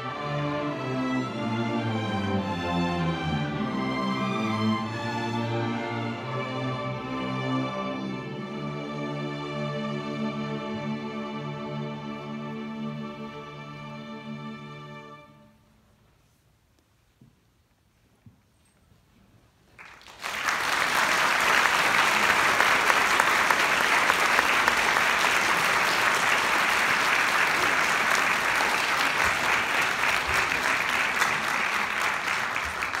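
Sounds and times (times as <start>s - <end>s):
audience applause: 19.8s - 33.0s.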